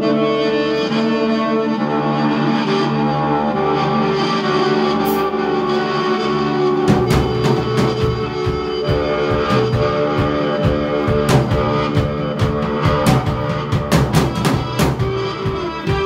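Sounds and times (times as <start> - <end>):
electric guitar: 0.0 - 16.0
sustained guitar chords ringing: 0.0 - 16.0
drum kit playing steady beat: 4.9 - 16.0.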